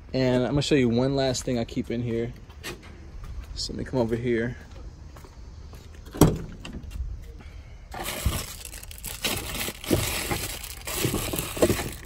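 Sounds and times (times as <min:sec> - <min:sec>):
rustling and rummaging: 0:07.9 - 0:12.0.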